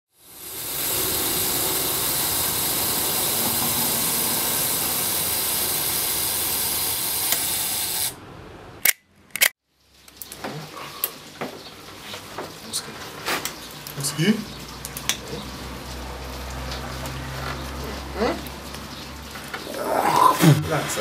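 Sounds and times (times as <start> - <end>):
steady hiss: 0.1 - 8.2.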